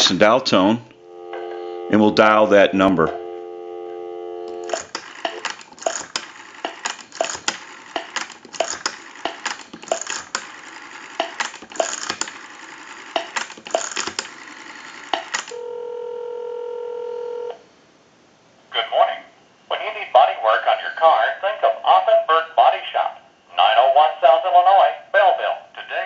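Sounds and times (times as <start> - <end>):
telephone ringback tone: 1.0 - 8.1, 8.7 - 17.6
rotary phone dial clicks: 4.5 - 15.6.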